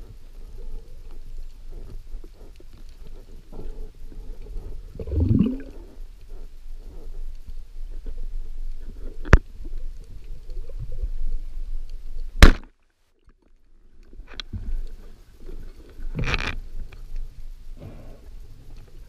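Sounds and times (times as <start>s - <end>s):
underwater rumble: 0.0s - 12.3s.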